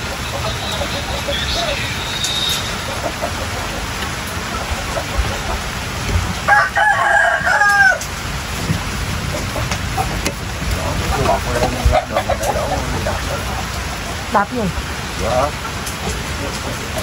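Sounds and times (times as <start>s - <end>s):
rain hissing: 0.0s - 17.0s
rooster crowing: 6.3s - 8.1s.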